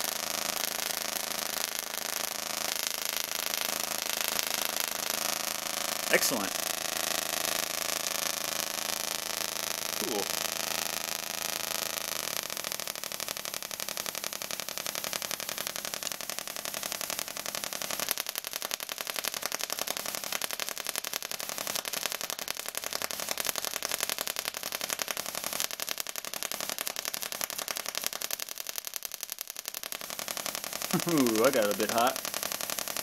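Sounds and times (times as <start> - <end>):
tesla coil crackling buzz: 0.0 - 33.0.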